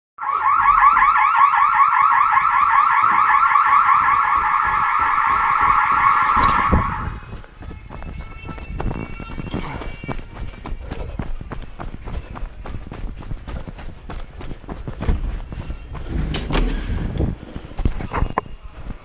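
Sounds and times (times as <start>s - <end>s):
electronic alarm chirping: 0.2s - 7.3s.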